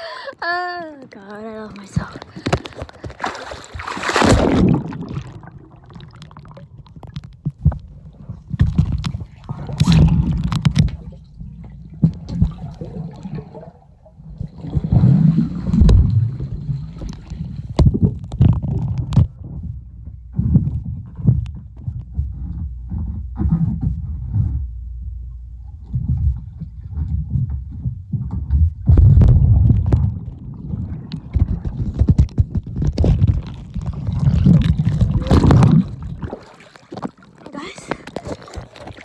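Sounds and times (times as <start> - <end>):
underwater churning and bubbling: 0.0 - 39.0
water splash: 1.7 - 7.2, 28.9 - 39.0
underwater knocks: 1.8 - 37.2.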